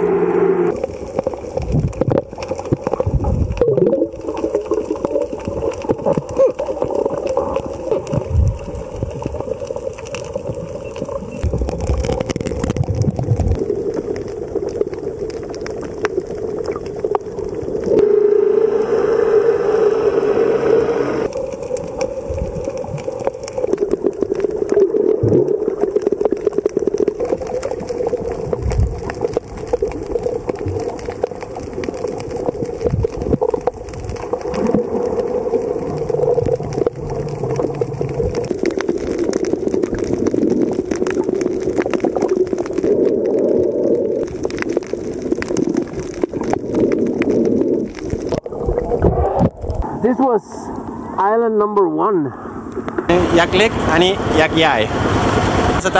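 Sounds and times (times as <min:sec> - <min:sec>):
underwater boat engine drone: 0:00.0 - 0:01.0, 0:17.9 - 0:24.0, 0:34.8 - 0:38.7, 0:52.4 - 0:55.9
small clicks and crackles: 0:00.7 - 0:18.0, 0:21.2 - 0:49.9.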